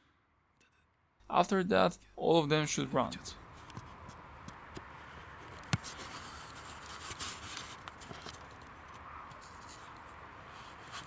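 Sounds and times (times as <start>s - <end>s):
camera handling rustle: 4.8s - 10.1s.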